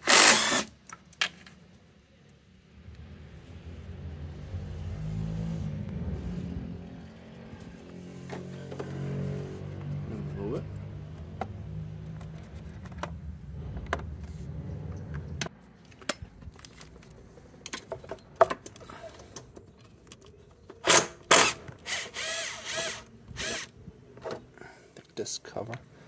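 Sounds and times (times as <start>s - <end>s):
cordless screwdriver motor whirring: 0.0s - 0.7s, 20.9s - 23.8s.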